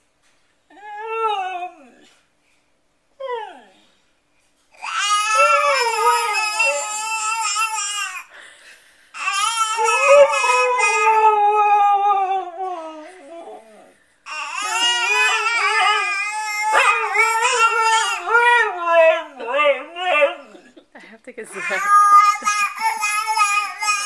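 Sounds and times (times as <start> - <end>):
dog howling: 4.8 - 7.8, 9.3 - 20.8.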